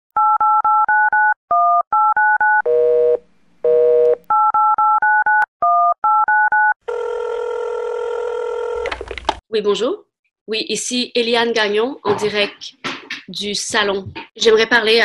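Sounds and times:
telephone keypad beeps: 0.2 - 2.7
telephone line tone: 0.2 - 8.9.

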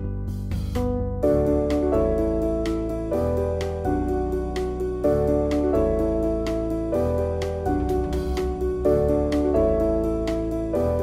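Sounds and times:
gentle piano instrumental music: 0.0 - 11.0.

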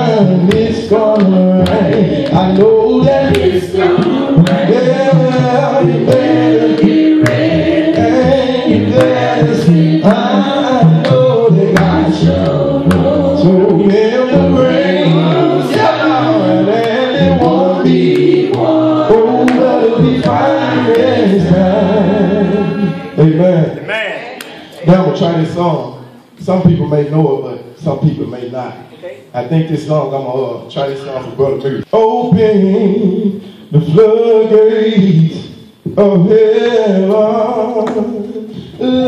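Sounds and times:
sharp percussive beat: 0.0 - 22.1
man singing gospel: 0.0 - 24.0, 29.4 - 39.0.

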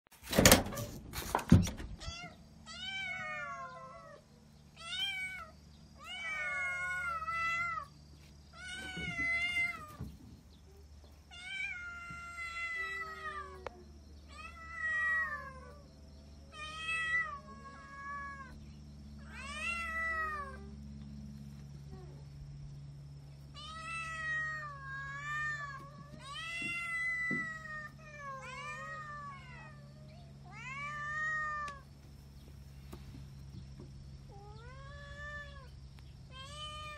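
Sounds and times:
door clunk: 0.2 - 2.1
kittens meowing: 2.0 - 7.9, 8.5 - 10.1, 10.7 - 15.9, 16.5 - 18.6, 19.2 - 20.8, 23.5 - 31.8, 34.3 - 36.9.

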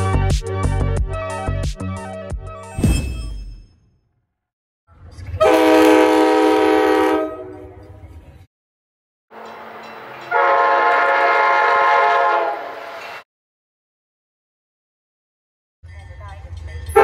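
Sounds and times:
train low rumble: 4.9 - 8.5, 15.8 - 17.0
train air horn chord: 5.4 - 7.7, 10.3 - 12.8.

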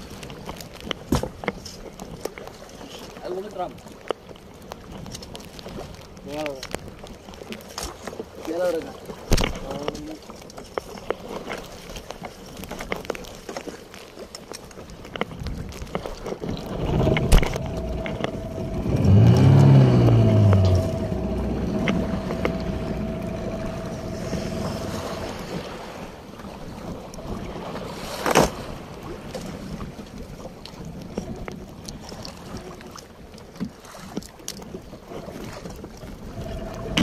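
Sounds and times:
water: 0.0 - 37.0
wind: 0.0 - 37.0
low droning note falling: 16.6 - 25.5
steady higher tone: 16.7 - 25.6, 36.4 - 37.0.

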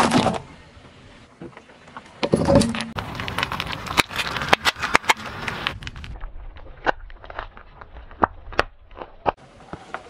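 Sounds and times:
car tyre crushing seashell: 2.6 - 9.4
shell cracking and crackling: 3.0 - 9.4.

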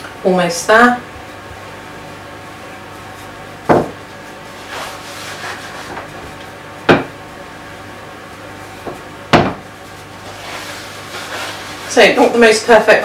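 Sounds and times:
rolling pin rolling pastry: 2.9 - 7.0, 8.3 - 13.0
rolling pin knocking on board: 3.7 - 4.0, 6.9 - 7.2, 8.8 - 9.7.

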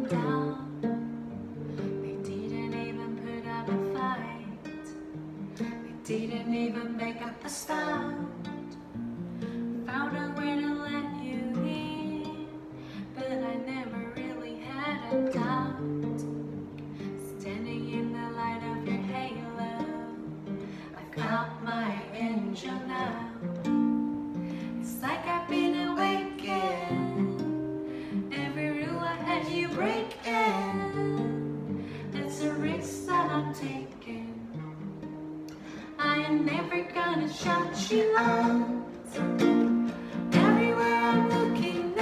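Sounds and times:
woman singing pop ballad: 0.0 - 0.8, 2.1 - 4.6, 6.0 - 8.5, 9.9 - 16.3, 20.9 - 23.6, 24.7 - 34.5, 35.9 - 42.0
nylon-string guitar: 0.0 - 42.0.

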